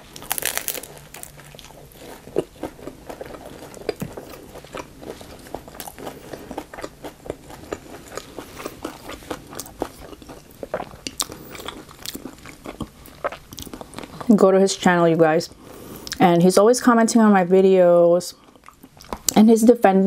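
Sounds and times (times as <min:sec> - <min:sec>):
crunchy chewing: 0:00.0 - 0:14.3.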